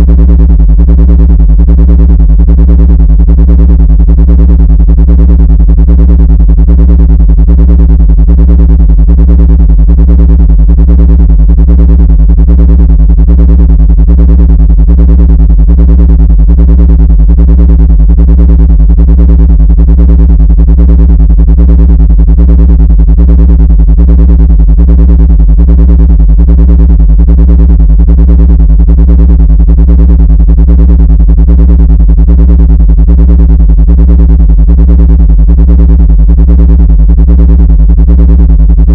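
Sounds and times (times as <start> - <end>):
fluttering electronic drone: 34.2 - 38.9.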